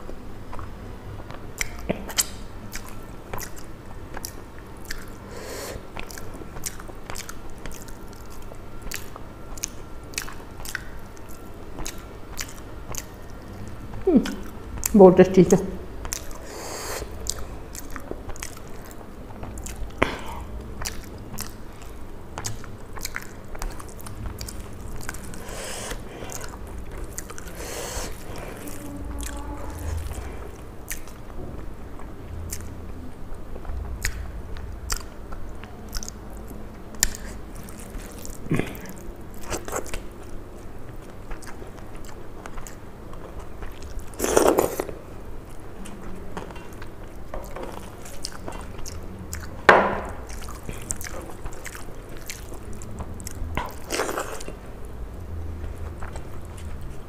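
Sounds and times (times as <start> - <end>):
chewing and biting food: 0.0 - 15.0, 16.0 - 57.0
wet mouth clicks and smacks: 1.5 - 5.2, 34.0 - 34.3
food crunching: 16.0 - 31.4, 33.4 - 57.0.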